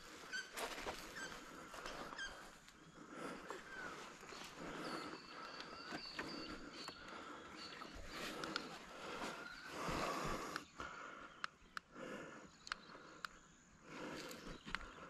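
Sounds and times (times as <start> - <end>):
small sharp clicks: 12.6 - 13.4.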